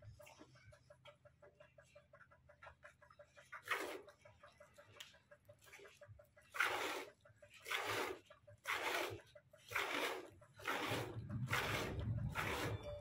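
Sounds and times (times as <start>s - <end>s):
milk squirting into plastic bucket: 3.5s - 4.2s, 5.7s - 12.8s.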